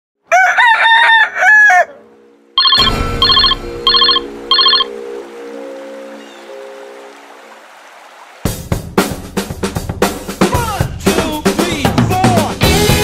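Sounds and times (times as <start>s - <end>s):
rooster crowing: 0.3s - 4.8s.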